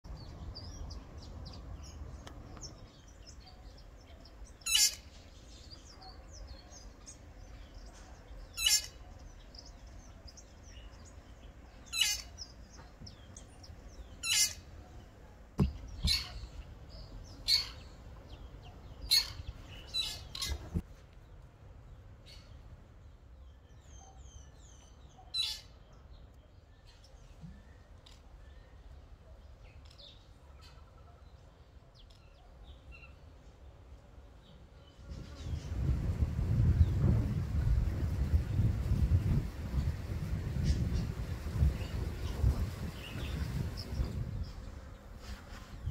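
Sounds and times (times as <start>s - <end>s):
faint bird chirping: 0.1s - 37.0s
birds making sharp calls: 2.6s - 6.4s, 7.6s - 10.4s, 11.0s - 14.9s, 15.6s - 20.8s.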